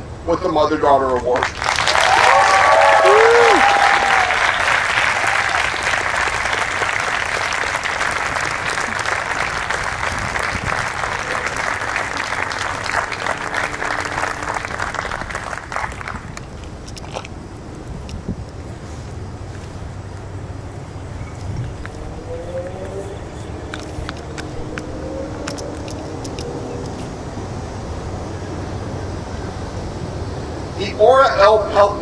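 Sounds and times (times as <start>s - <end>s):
audience applauding: 1.1s - 17.3s
vocal whoop: 1.9s - 5.7s.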